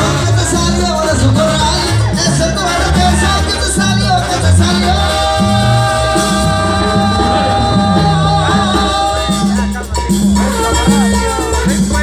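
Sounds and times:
brass band playing: 0.0s - 12.0s.

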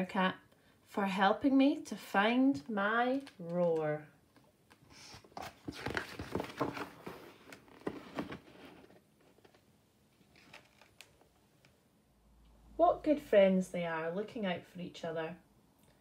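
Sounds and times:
paper page rustling: 5.0s - 9.6s, 10.2s - 11.2s.

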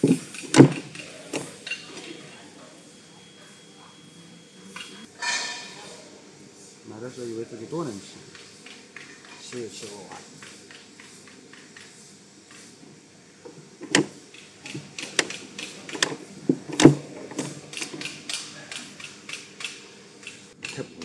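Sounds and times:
metallic clicks of welding machine: 13.8s - 16.2s, 17.7s - 21.0s.

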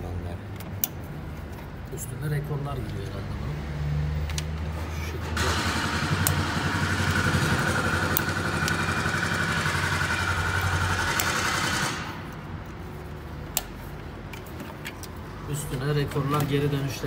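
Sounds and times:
motor running with high whine: 5.4s - 12.1s.

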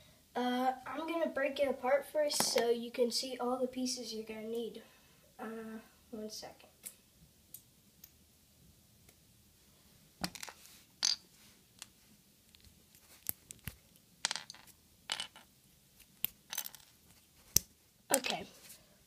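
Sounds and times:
plastic pieces clicking and tapping: 12.5s - 16.9s.

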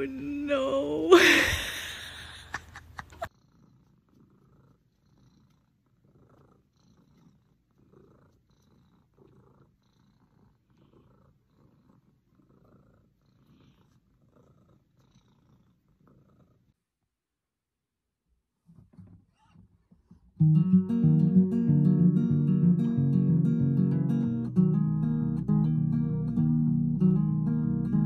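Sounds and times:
cat purring: 3.1s - 17.0s.

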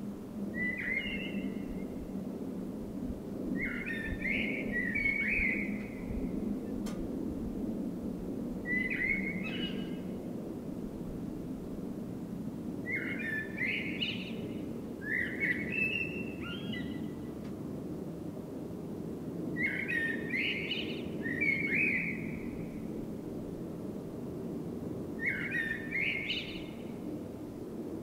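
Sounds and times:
blackbird singing: 0.6s - 1.9s, 3.6s - 6.2s, 8.7s - 10.1s, 12.9s - 17.1s, 19.6s - 22.5s, 25.2s - 26.8s.

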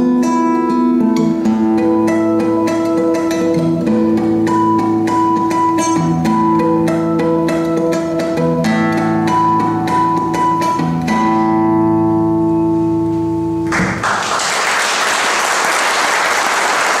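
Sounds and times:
classical guitar playing: 0.0s - 14.0s
audience applause: 13.7s - 17.0s.

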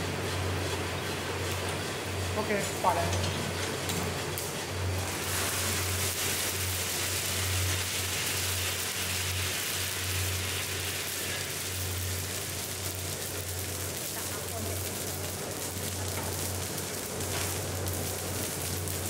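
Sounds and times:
roaster motor hum: 0.0s - 19.0s
coffee beans pouring onto metal: 5.0s - 19.0s.

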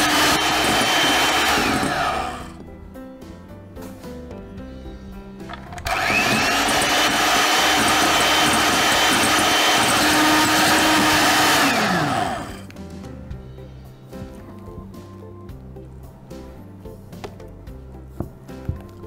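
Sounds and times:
electric hand mixer whining: 0.0s - 2.6s, 5.8s - 12.7s.

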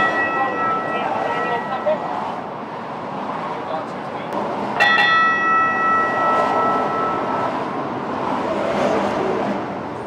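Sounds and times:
ringing metallic strikes: 0.0s - 2.2s, 4.8s - 7.8s.

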